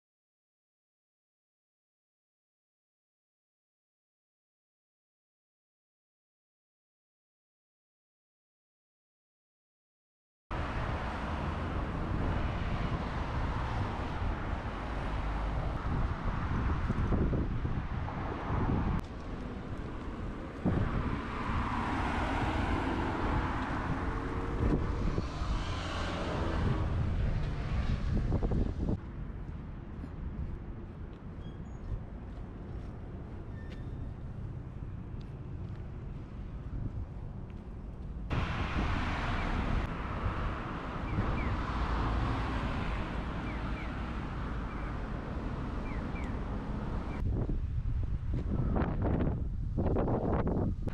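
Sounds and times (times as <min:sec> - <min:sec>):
road traffic noise: 0:10.5 - 0:50.9
car passing: 0:10.6 - 0:30.8, 0:34.2 - 0:47.8
wind buffeting microphone: 0:10.6 - 0:50.9.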